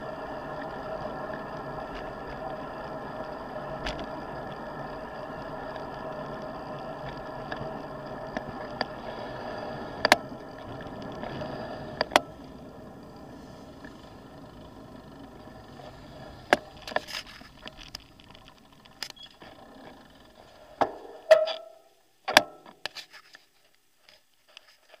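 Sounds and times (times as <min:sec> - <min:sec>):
bike tyres whirring: 0:00.0 - 0:25.0
scattered clicks: 0:00.4 - 0:20.6
knocks and rattles over bumps: 0:16.4 - 0:22.8.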